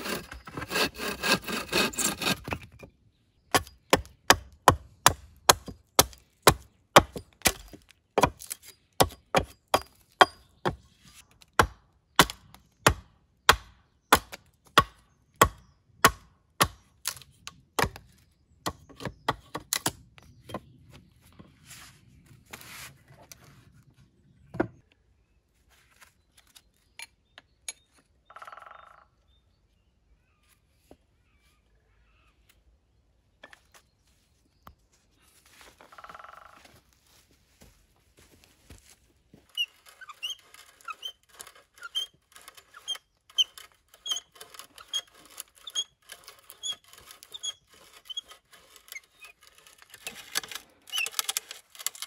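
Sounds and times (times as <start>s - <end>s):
hatchet chopping wood: 3.5s - 10.8s, 11.4s - 20.0s.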